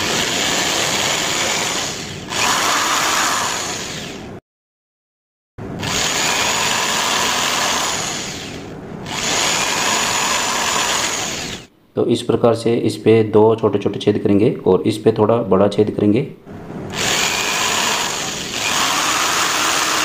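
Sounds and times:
electric drill boring wood: 0.0s - 4.3s, 5.8s - 11.7s, 16.9s - 20.0s.

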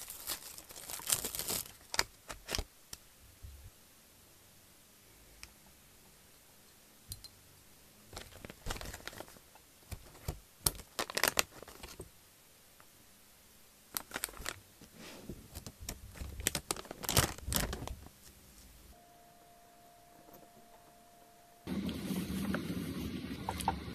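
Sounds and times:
plastic snack bags crinkling: 0.0s - 2.7s, 8.1s - 12.1s, 13.9s - 14.7s, 15.4s - 18.1s.

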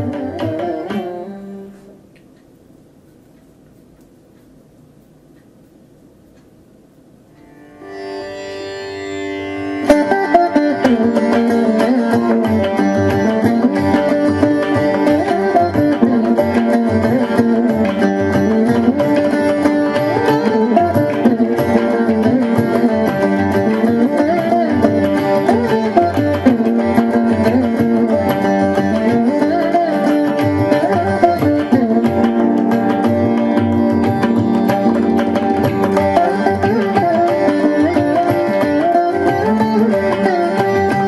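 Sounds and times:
hand drum: 0.0s - 1.9s, 10.4s - 41.0s
plucked veena melody: 0.0s - 2.1s, 7.3s - 41.0s.

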